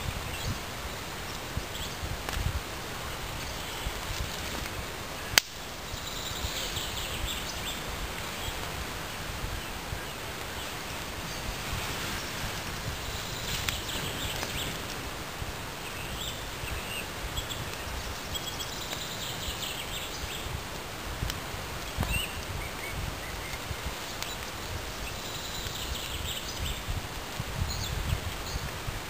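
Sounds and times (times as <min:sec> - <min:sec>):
rustling: 0:00.0 - 0:05.6
small birds chirping: 0:00.0 - 0:28.9.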